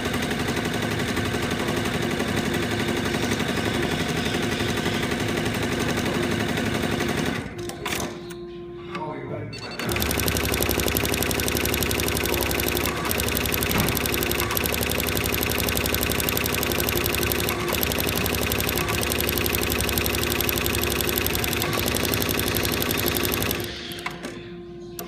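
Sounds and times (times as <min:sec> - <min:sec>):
motor hum: 0:09.8 - 0:24.0
embroidery machine clattering: 0:09.8 - 0:24.2.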